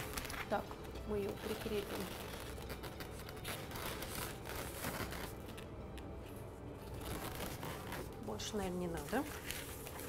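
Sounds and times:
rubbery balloons rubbing: 1.2s - 5.5s, 6.8s - 10.0s.

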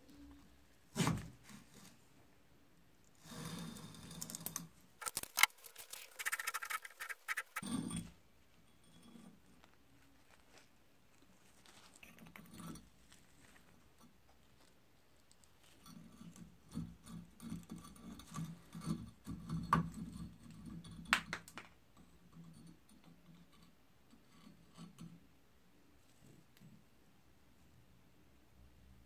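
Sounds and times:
metal scraping and rattling: 5.0s - 8.1s.

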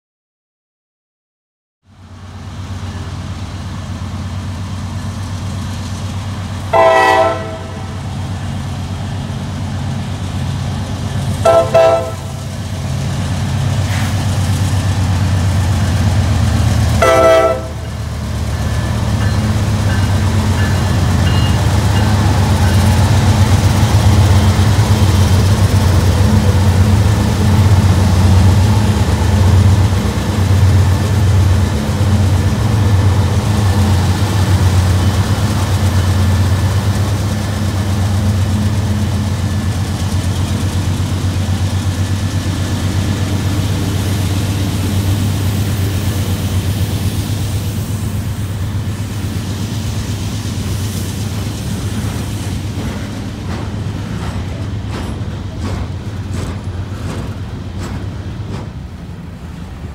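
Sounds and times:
diesel locomotive engines rumbling: 1.9s - 59.9s
locomotive air horn blasts: 6.7s - 8.0s, 11.4s - 12.4s, 17.0s - 17.9s.

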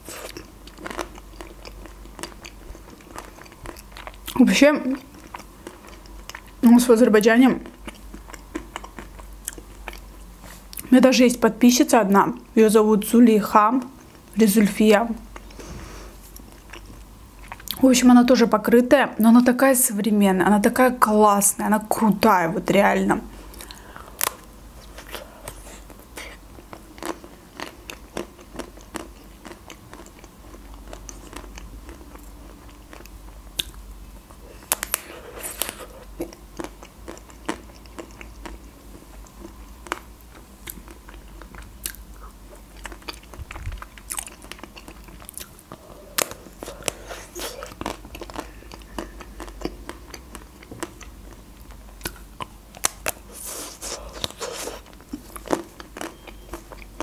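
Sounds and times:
chewing with wet mouth clicks: 0.1s - 6.6s, 7.6s - 10.1s, 16.3s - 17.8s, 26.2s - 57.0s.

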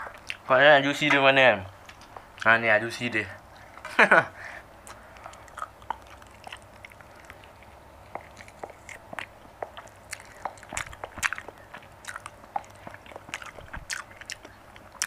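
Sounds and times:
chewing meat with mouth smacks: 0.0s - 0.4s, 4.8s - 15.0s.

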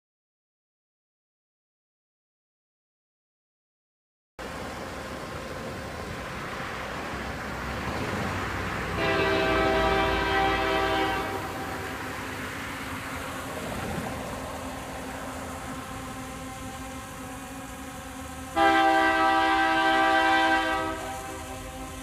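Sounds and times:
road traffic: 4.4s - 22.0s
rumble of approaching train: 4.4s - 22.0s
locomotive horn blast: 8.9s - 22.0s.

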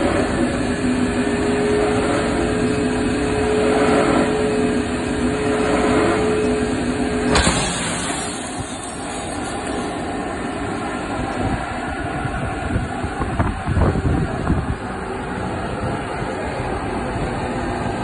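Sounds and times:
sharp knock: 7.3s - 10.0s.

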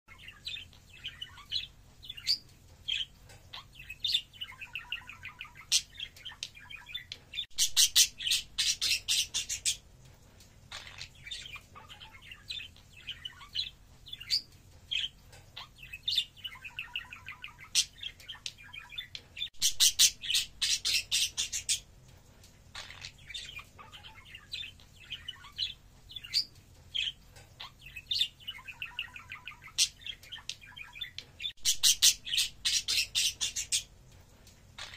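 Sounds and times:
budgerigars chirping: 0.1s - 9.8s, 10.7s - 21.8s, 22.7s - 33.9s.

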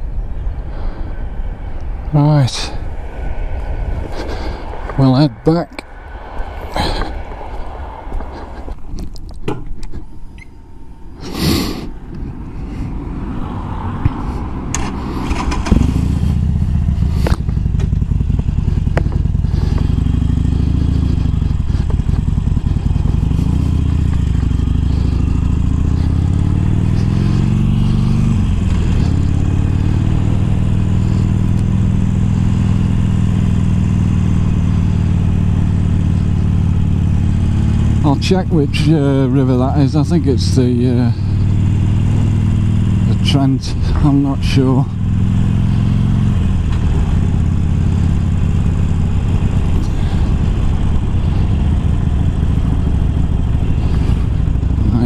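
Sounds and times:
clatter and scraping: 8.2s - 10.1s, 14.1s - 30.1s, 49.2s - 55.0s
motorcycle engine: 12.0s - 55.0s.

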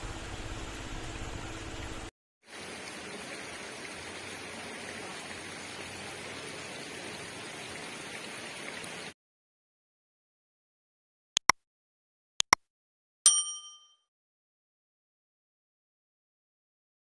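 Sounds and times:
creek water rushing: 2.5s - 9.1s.

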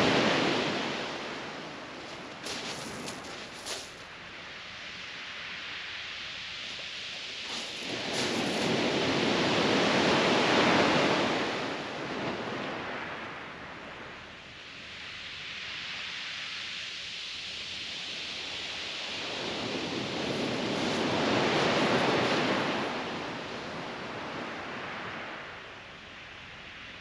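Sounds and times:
small waves washing up shingle: 0.0s - 4.6s, 6.5s - 11.9s, 19.4s - 23.8s.

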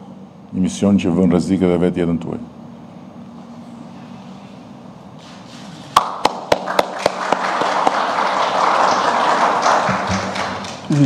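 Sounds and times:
loud single claps: 5.9s - 11.0s
audience applause: 6.0s - 11.0s.

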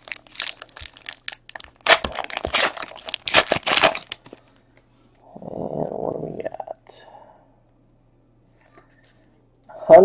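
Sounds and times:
foil wrapper crinkling and tearing: 0.0s - 4.4s.

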